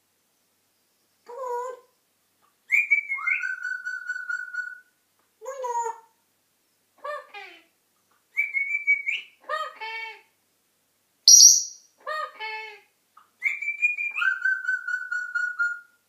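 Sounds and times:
parrot whistling and calling: 0:11.3 - 0:11.8.

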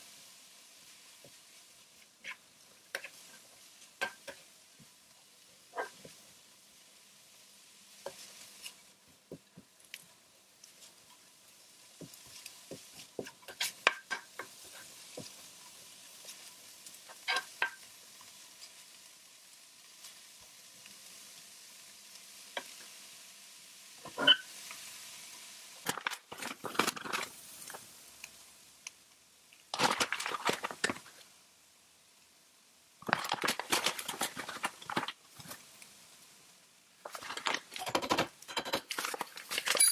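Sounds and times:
leeks sizzling in frying pan: 0:00.0 - 0:39.6
spoon scraping across pan: 0:01.2 - 0:04.5, 0:08.0 - 0:08.9, 0:12.0 - 0:15.5, 0:17.1 - 0:17.8, 0:24.0 - 0:24.6, 0:25.8 - 0:27.9, 0:33.0 - 0:35.7, 0:37.0 - 0:39.9.

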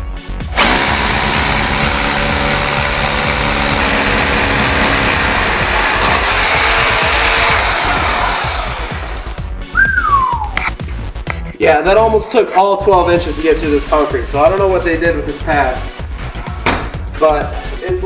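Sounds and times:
hammer drill boring into concrete: 0:00.6 - 0:09.3.

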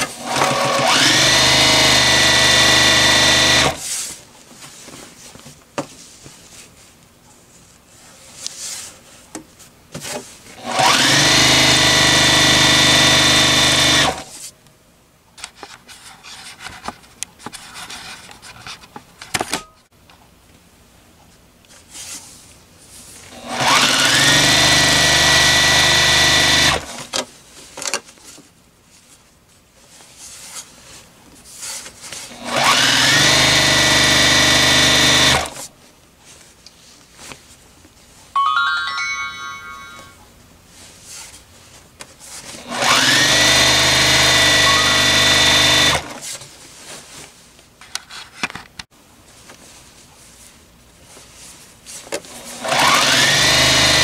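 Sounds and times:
sewing machine motor whine: 0:00.2 - 0:03.8, 0:10.6 - 0:14.2, 0:23.4 - 0:27.0, 0:32.4 - 0:35.6, 0:42.7 - 0:46.2, 0:52.5 - 0:54.0.

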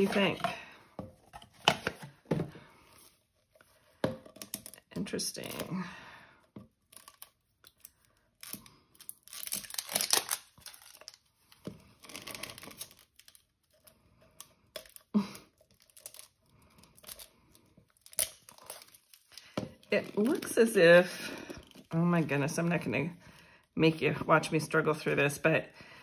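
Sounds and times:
plastic film crinkling and tearing: 0:06.8 - 0:22.0.

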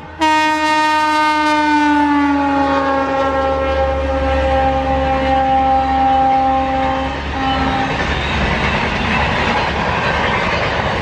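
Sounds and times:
rumble of passing train coaches: 0:00.0 - 0:11.0
locomotive horn blast: 0:00.2 - 0:08.0.

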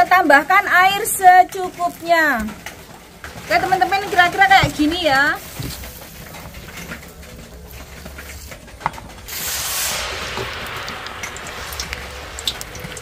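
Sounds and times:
batter sizzling in hot oil: 0:04.7 - 0:13.0.

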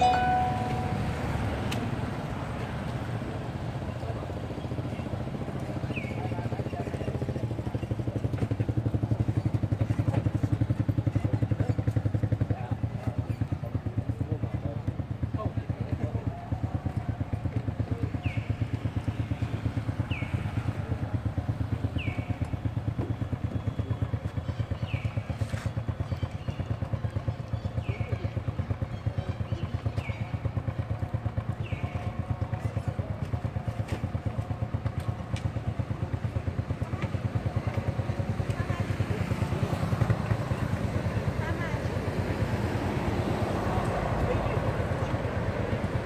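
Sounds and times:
high chirp: 0:00.0 - 0:01.5
motorcycle engine idling: 0:00.0 - 0:46.0.

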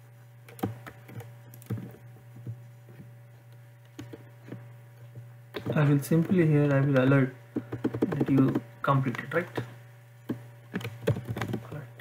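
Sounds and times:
low electrical hum: 0:00.0 - 0:12.0
keyboard keys clicking: 0:05.6 - 0:09.4, 0:10.8 - 0:11.8.

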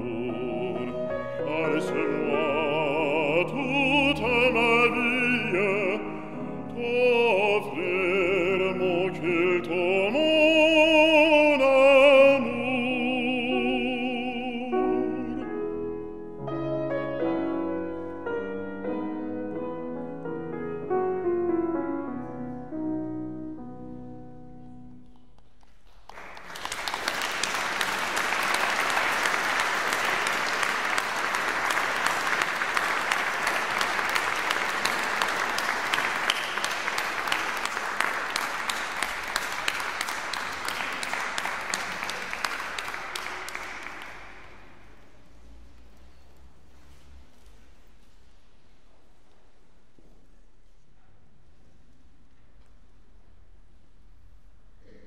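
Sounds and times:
man singing classical style: 0:00.0 - 0:16.2, 0:27.4 - 0:44.2
grand piano: 0:00.0 - 0:55.0
audience applauding: 0:25.8 - 0:44.7.

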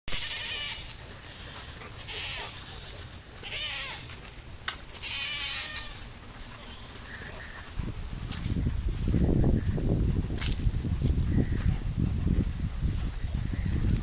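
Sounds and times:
high-pitched animal calls: 0:00.1 - 0:04.2, 0:04.9 - 0:07.7.

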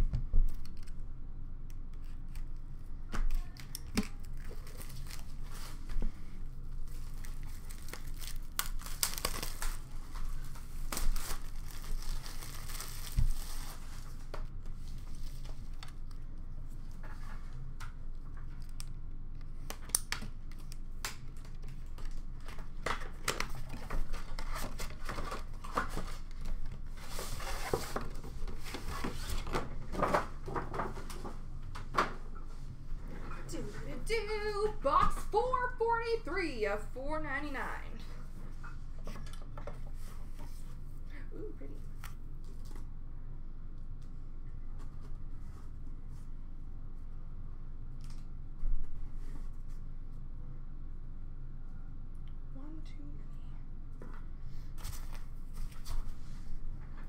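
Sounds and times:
steady low hum: 0:00.0 - 0:57.0
wrapping crinkling and tearing: 0:03.4 - 0:05.9, 0:06.7 - 0:16.2.

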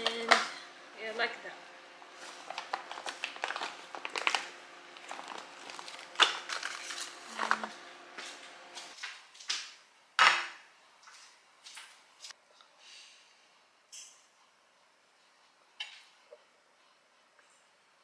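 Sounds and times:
plastic packaging crinkling: 0:02.2 - 0:07.8.

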